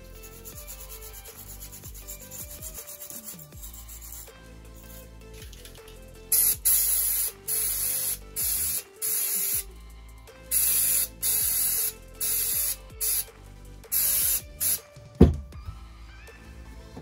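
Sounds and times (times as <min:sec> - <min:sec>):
aerosol spray hissing bursts: 0:06.3 - 0:09.7, 0:10.5 - 0:14.9.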